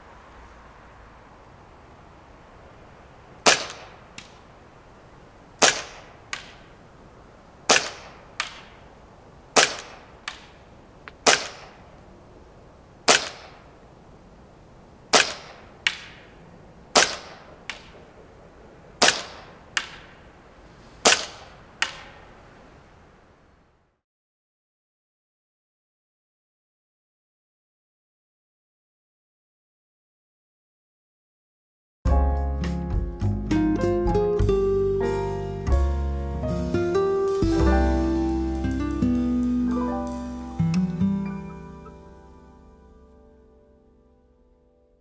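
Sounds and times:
airsoft pistol shots: 3.4 - 4.4, 5.6 - 6.7, 7.7 - 8.8, 9.6 - 10.6, 11.2 - 11.8, 13.1 - 13.7, 15.1 - 16.3, 16.9 - 18.0, 19.0 - 20.1, 21.0 - 22.2.

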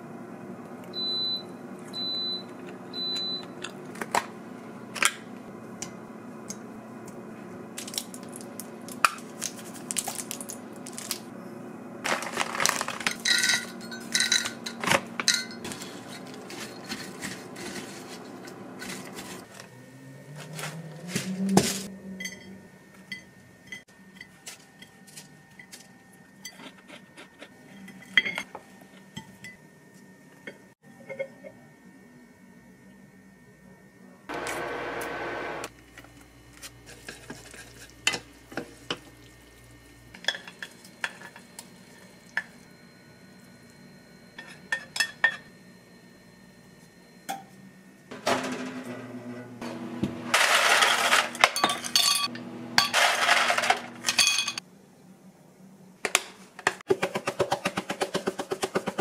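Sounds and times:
utensils clinking on dishes: 12.4 - 19.5, 21.6 - 29.6, 40.1 - 42.6, 44.4 - 45.5, 50.4 - 54.6.

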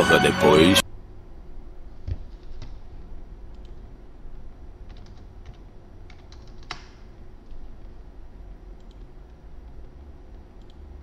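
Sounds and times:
computer keyboard keystrokes: 4.9 - 7.0.

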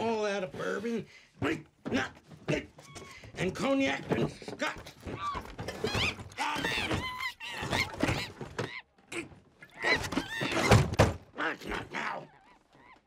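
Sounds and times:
monkey chattering and shrieking: 5.1 - 10.8.

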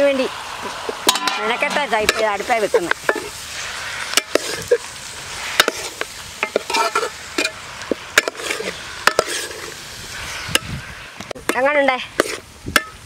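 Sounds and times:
meat sizzling in oil: 0.0 - 13.0
tongs clicking and scraping pot: 4.1 - 4.9, 5.6 - 9.8, 11.4 - 13.0.

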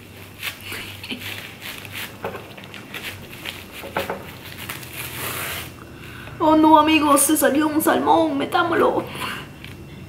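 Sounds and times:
plastic cling wrap crinkling: 0.0 - 5.8.

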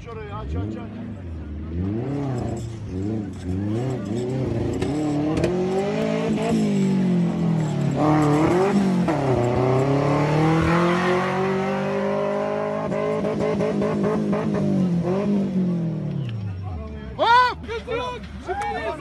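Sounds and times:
off-road engine revving: 0.0 - 16.8.

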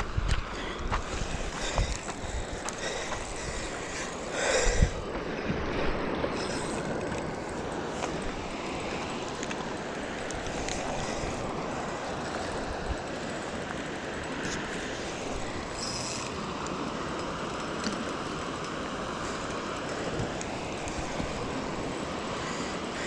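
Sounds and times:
wind across microphone: 0.0 - 7.1
faint ticks: 6.4 - 21.5.

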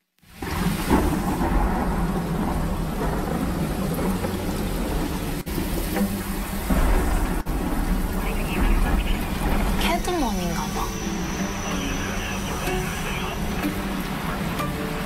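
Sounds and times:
dense low rumbling: 1.3 - 15.0.

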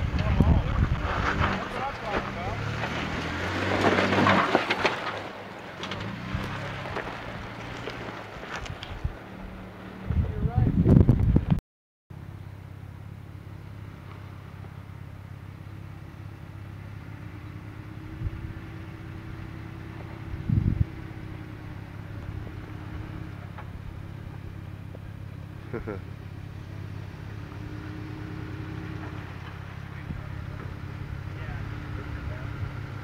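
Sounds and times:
gravel crunching under tyres: 0.0 - 10.4, 13.4 - 33.0
car engine at low revs: 0.0 - 33.0.

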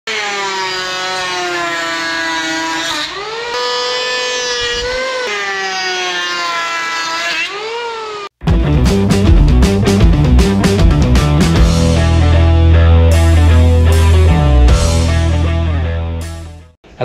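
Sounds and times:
electric hand planer whining: 0.1 - 8.4
rock music: 8.4 - 16.8.

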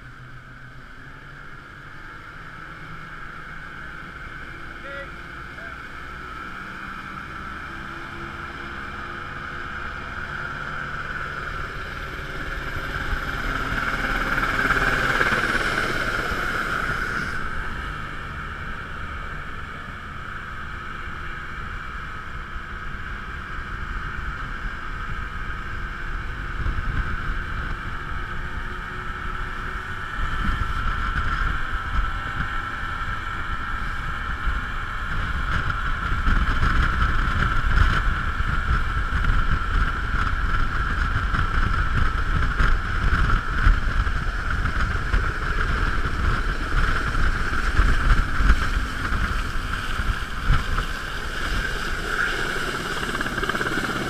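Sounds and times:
boat engine running: 0.0 - 54.0
wind rumble on microphone: 5.3 - 54.0
water noise: 42.6 - 54.0.

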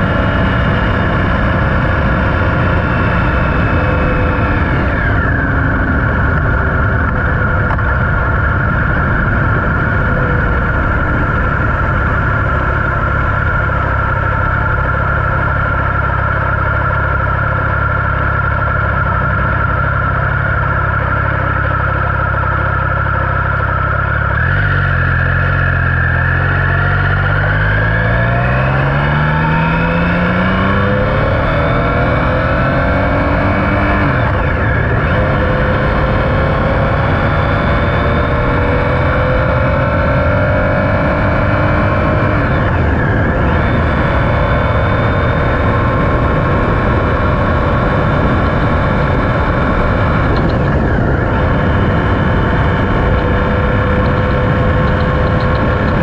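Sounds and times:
wind on microphone: 0.0 - 16.0, 25.8 - 56.0
motorcycle engine running: 0.0 - 56.0.

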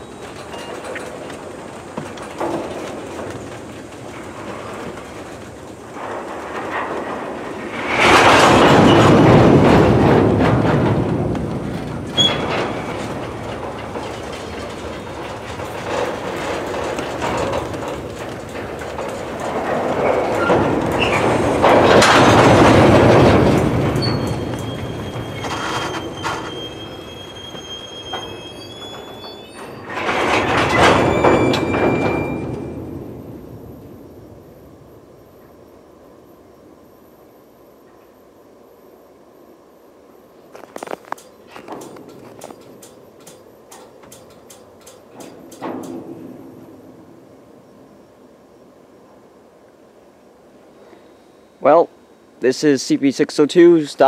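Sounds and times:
train wheels clacking over rails: 0.0 - 34.5, 40.6 - 47.4
wheels squealing: 0.0 - 35.6.

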